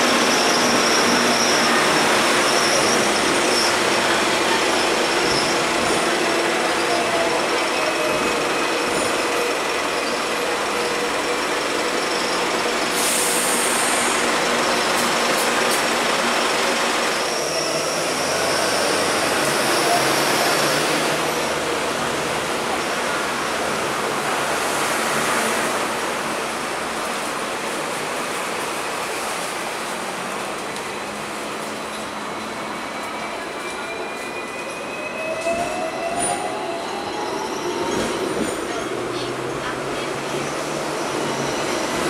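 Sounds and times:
tram wheels rumbling on rails: 0.0 - 42.0.

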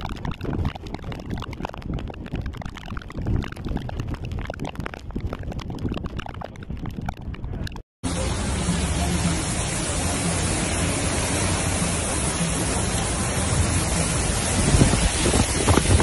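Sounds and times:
wind hitting microphone crackles: 0.0 - 7.8, 14.1 - 16.0
heavy rain and wind rushing: 8.1 - 16.0.

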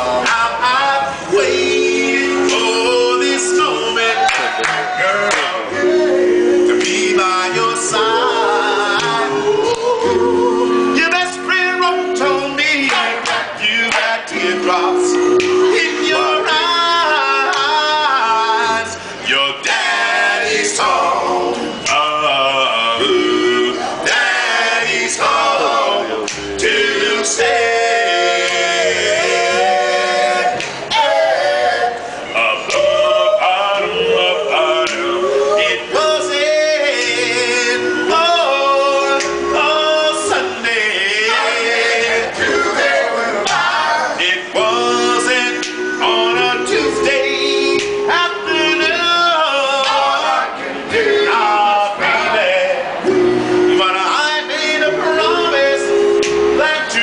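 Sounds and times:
men singing a cappella: 0.0 - 57.0.

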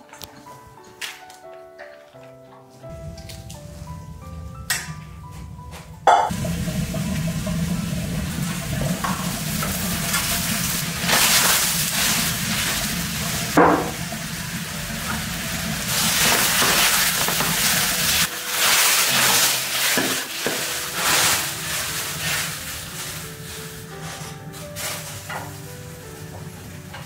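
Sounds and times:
food sizzling in a pan: 6.3 - 27.0.

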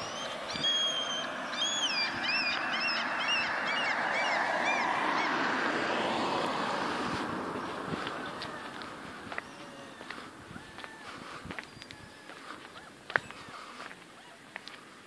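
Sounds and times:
bird calling: 0.0 - 5.5, 7.0 - 15.0
background rush: 0.0 - 11.5.

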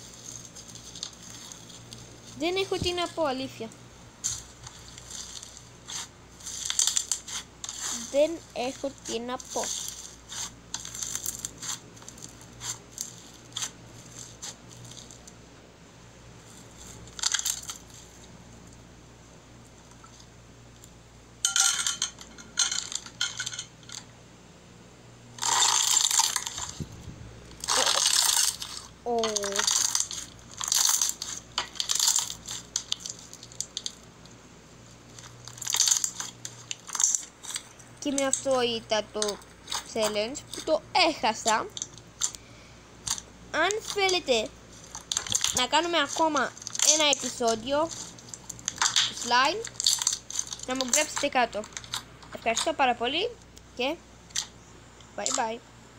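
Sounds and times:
slime crackling and popping: 4.2 - 15.4, 25.4 - 26.8, 27.5 - 34.4, 35.1 - 40.8, 43.0 - 52.8.

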